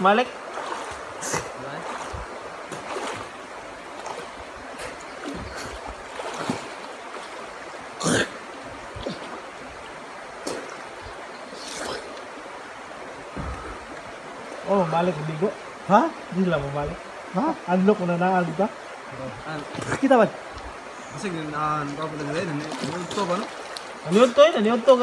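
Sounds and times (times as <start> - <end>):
swimmers splashing: 0.0 - 9.6, 21.9 - 25.0
stream running over rocks: 0.0 - 25.0.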